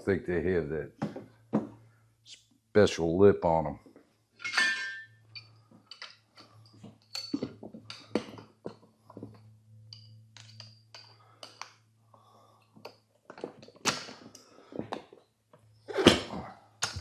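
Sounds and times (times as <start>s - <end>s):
metal tools clinking and knocking: 4.4s - 11.7s.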